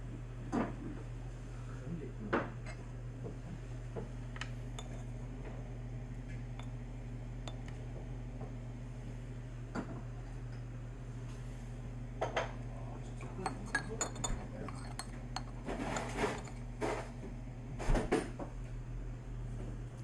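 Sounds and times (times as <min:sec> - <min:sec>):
low room hum: 0:00.0 - 0:20.0
dishes and cutlery clinking: 0:04.8 - 0:05.1, 0:13.4 - 0:16.6.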